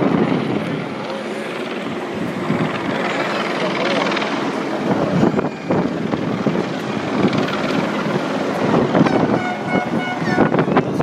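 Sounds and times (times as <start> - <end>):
crowd chattering: 0.0 - 11.0.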